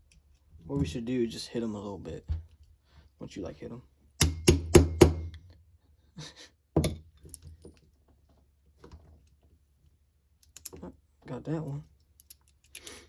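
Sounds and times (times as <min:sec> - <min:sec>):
sharp hits on hand tool: 0:04.2 - 0:05.4.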